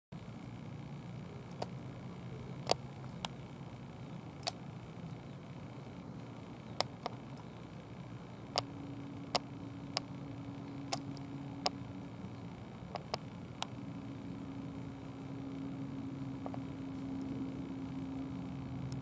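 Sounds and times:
faint low hum: 0:00.2 - 0:19.0
steady low tone: 0:00.2 - 0:19.0
sharp short clicks: 0:04.4 - 0:04.6, 0:10.8 - 0:11.8.

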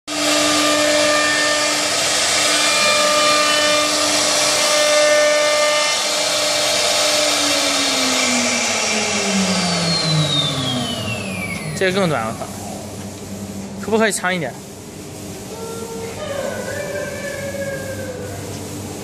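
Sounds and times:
router spindle whine: 0:00.1 - 0:12.0.

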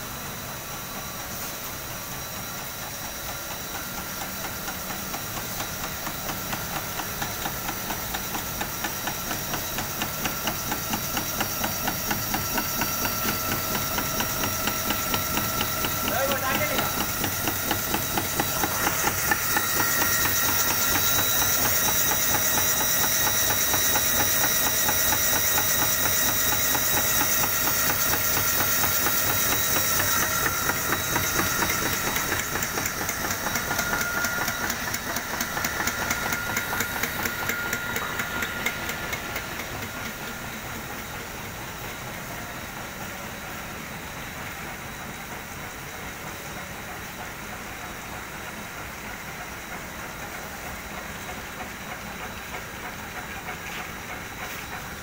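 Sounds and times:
high machine whine: 0:00.0 - 0:55.0.

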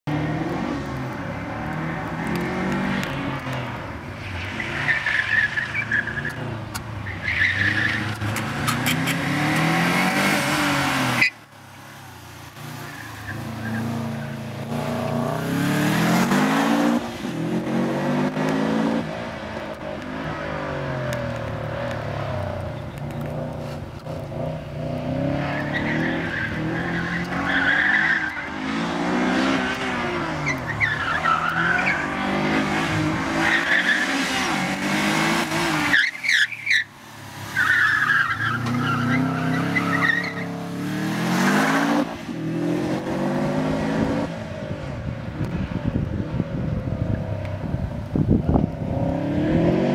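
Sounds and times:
car engine revving: 0:00.0 - 0:11.3, 0:12.4 - 0:36.4
tyres squealing: 0:35.8 - 0:36.9, 0:37.6 - 0:40.6.

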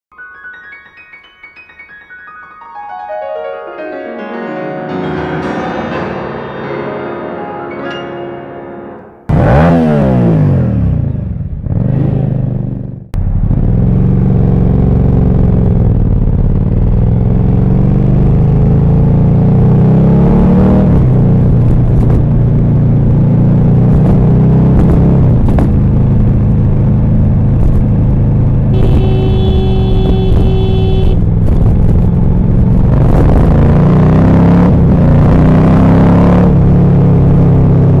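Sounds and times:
motorcycle engine revving: 0:09.3 - 0:38.0
falling tones intro: 0:28.7 - 0:31.2
motorcycle horn honk: 0:28.7 - 0:31.3.

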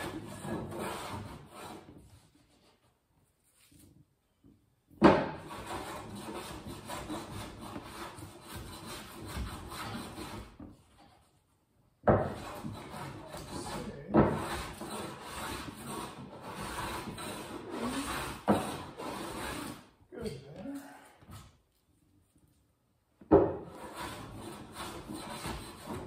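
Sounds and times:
hand plane shaving wood: 0:00.0 - 0:02.8, 0:05.4 - 0:11.2, 0:12.2 - 0:19.9, 0:23.6 - 0:26.0.

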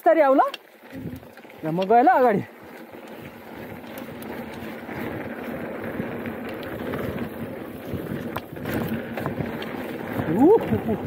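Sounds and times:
bike tyre noise on trail: 0:00.0 - 0:11.0
sharp clicks and rattles: 0:00.1 - 0:07.4
wind buffeting microphone: 0:00.8 - 0:01.6, 0:03.0 - 0:11.0.

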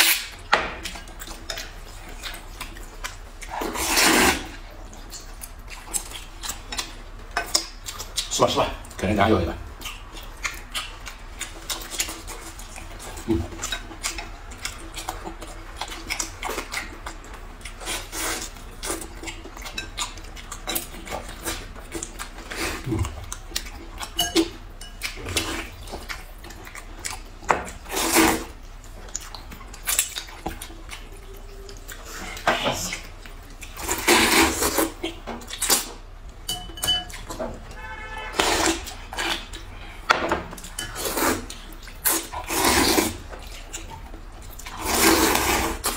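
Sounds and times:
noodles slurped: 0:03.4 - 0:04.6, 0:27.2 - 0:28.6, 0:29.4 - 0:36.0, 0:40.7 - 0:45.9
chopsticks tapping bowls: 0:36.4 - 0:37.3.

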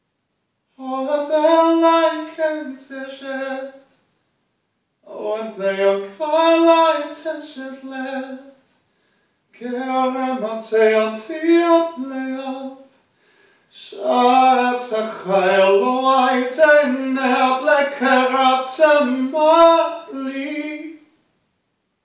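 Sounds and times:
man singing unaccompanied: 0:00.8 - 0:03.9, 0:05.1 - 0:08.6, 0:09.6 - 0:12.9, 0:13.7 - 0:21.1.

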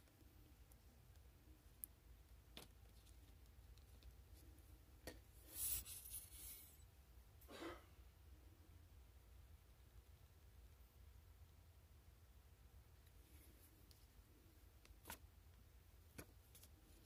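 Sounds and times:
fingers rustling paper: 0:05.5 - 0:06.8.

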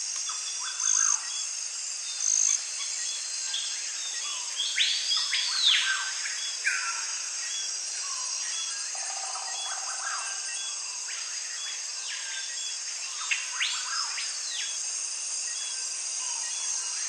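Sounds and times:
high insect drone: 0:00.0 - 0:17.0
short insect chirp: 0:00.0 - 0:17.0.

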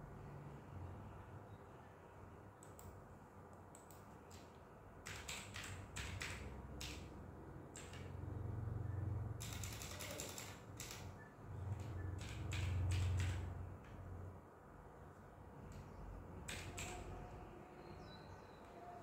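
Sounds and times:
typing on laptop keyboard: 0:03.7 - 0:08.2, 0:09.3 - 0:14.0, 0:16.4 - 0:17.3.

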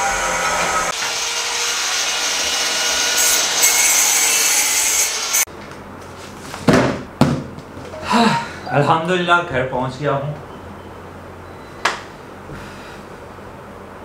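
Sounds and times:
cardboard box knocks: 0:06.6 - 0:07.6.

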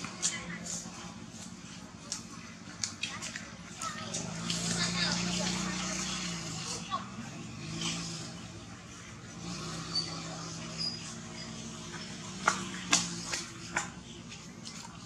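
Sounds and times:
baby monkeys squeaking: 0:09.8 - 0:11.6.

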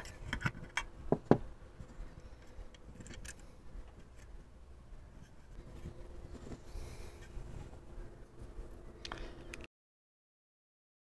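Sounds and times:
hands handling plastic clicks: 0:00.0 - 0:01.0, 0:01.8 - 0:04.4.

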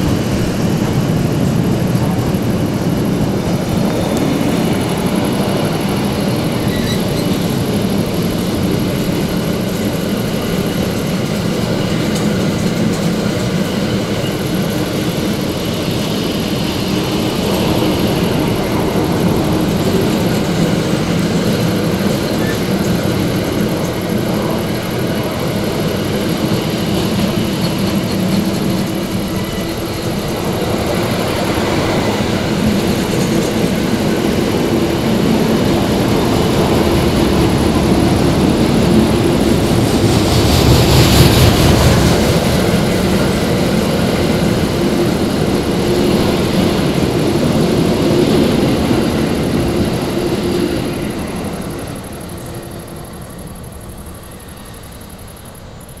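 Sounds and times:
freight train wheels rattling: 0:00.0 - 0:56.0.

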